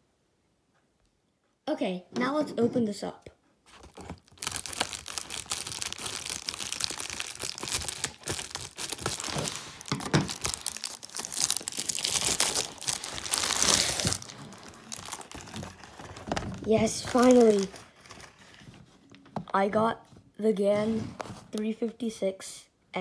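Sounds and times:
packaging crumpling and rustling: 0:03.7 - 0:19.2
mailer bag tearing: 0:03.8 - 0:18.0.

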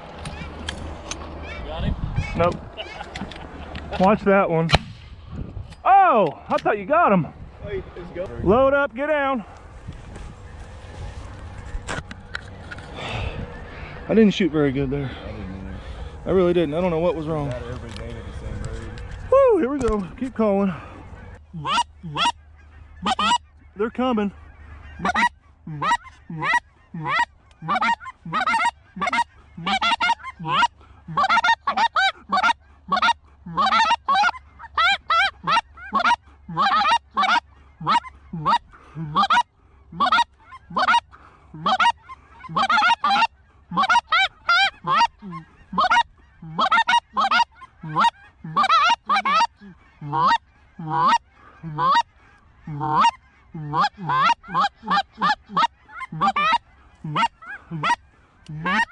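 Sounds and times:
goose call honks and clucks: 0:00.0 - 0:04.8, 0:16.8 - 0:58.9.

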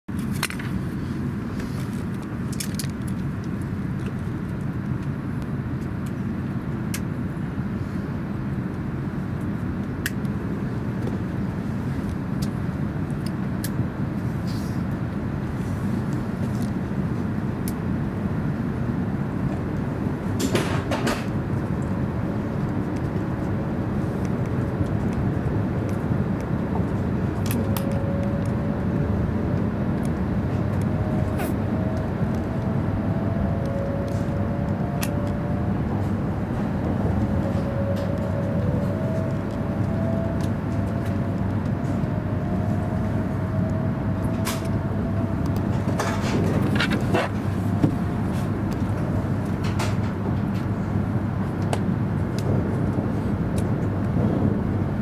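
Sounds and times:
faint train whine: 0:00.4 - 0:55.0
train wheels rumbling: 0:18.8 - 0:29.8
train clatter: 0:20.3 - 0:21.4, 0:45.6 - 0:48.0.

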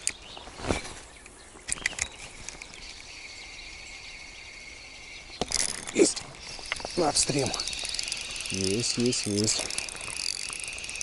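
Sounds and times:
fishing reel whirring: 0:04.2 - 0:11.0.

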